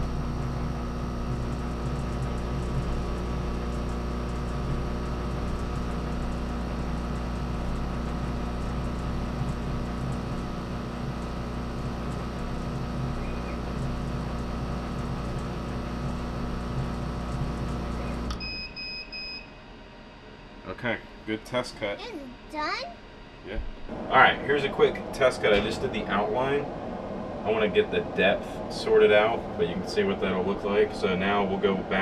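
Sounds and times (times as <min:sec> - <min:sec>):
laser engraver hum: 0:00.0 - 0:20.6.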